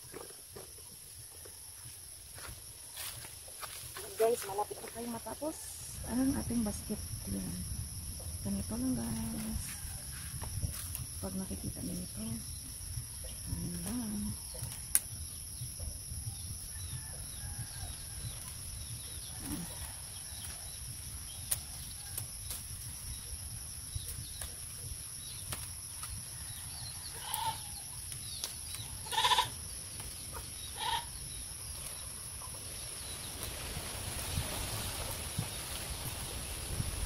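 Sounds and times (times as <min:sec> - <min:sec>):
bamboo strips clicking and rustling: 0:21.4 - 0:23.0, 0:25.4 - 0:26.2, 0:27.3 - 0:29.0
animal calling: 0:29.0 - 0:29.5, 0:30.7 - 0:31.2.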